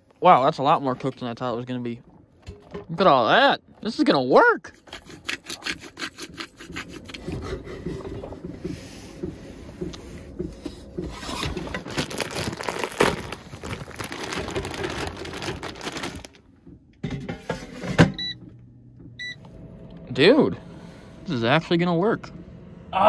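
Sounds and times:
plastic packaging crinkling: 0:11.6 - 0:16.4.

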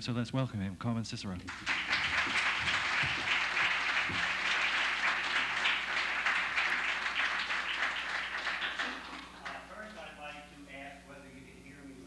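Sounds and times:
audience applauding: 0:01.5 - 0:10.2.

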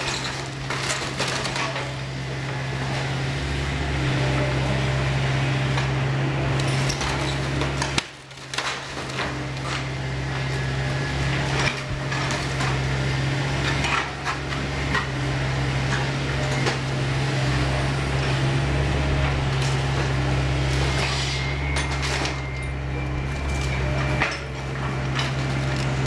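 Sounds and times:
diesel engine running: 0:00.0 - 0:26.0
timber cracking and debris falling: 0:06.8 - 0:09.9.

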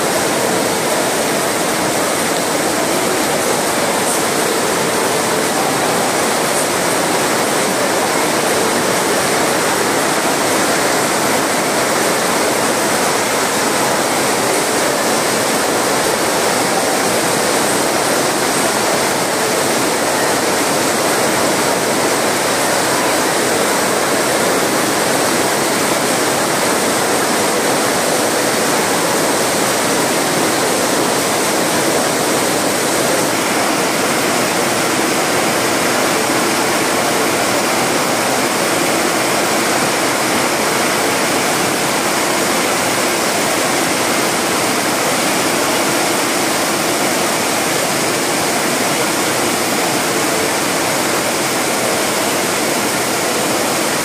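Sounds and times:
heavy rain pouring: 0:00.0 - 0:54.0.

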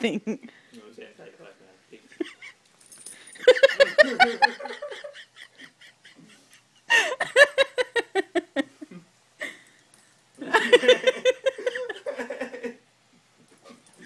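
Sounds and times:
person laughing: 0:03.5 - 0:09.6, 0:10.4 - 0:12.8.

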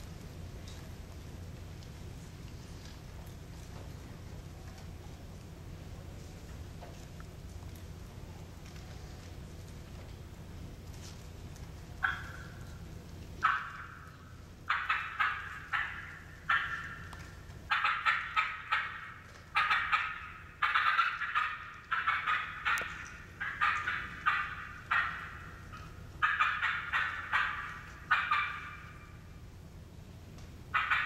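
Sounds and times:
turkey call clucks: 0:11.9 - 0:29.4, 0:30.7 - 0:31.0.

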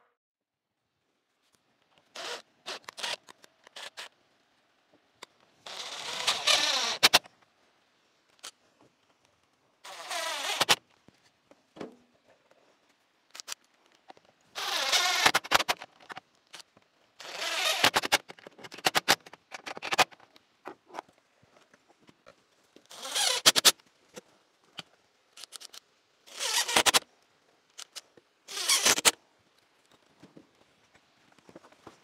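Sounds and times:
cordless driver driving screws: 0:05.7 - 0:07.3, 0:09.9 - 0:10.8, 0:14.6 - 0:16.6, 0:17.2 - 0:20.2, 0:25.4 - 0:27.0, 0:27.8 - 0:29.2.

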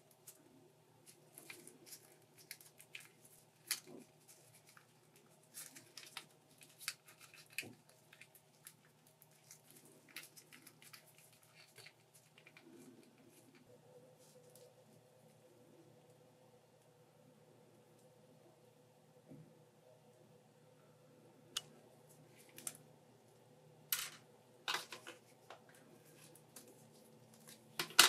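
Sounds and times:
plastic figure clicks and rustles: 0:01.1 - 0:13.6, 0:24.0 - 0:28.0.

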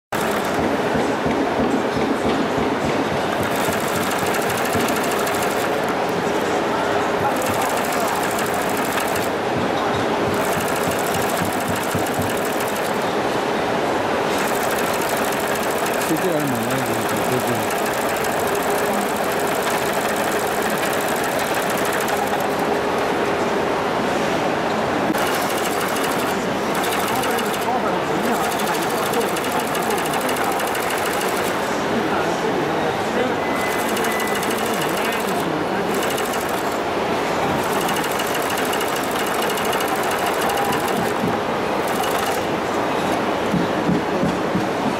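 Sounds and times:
sewing machine stitching clatter: 0:00.1 - 0:01.0, 0:03.1 - 0:06.5, 0:07.1 - 0:09.4, 0:10.2 - 0:13.2, 0:14.3 - 0:22.7, 0:25.1 - 0:31.7, 0:33.6 - 0:43.2.

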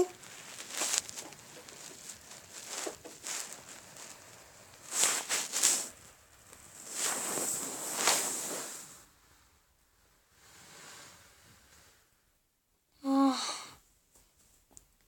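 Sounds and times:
plastic toy figures rustling: 0:00.0 - 0:08.8.

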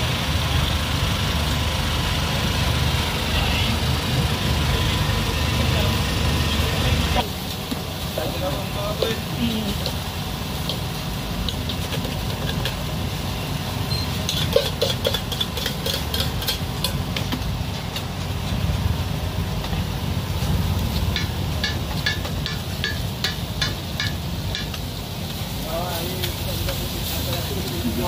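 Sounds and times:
low engine rumble: 0:00.0 - 0:28.0
clinks and clatter: 0:14.2 - 0:18.2.

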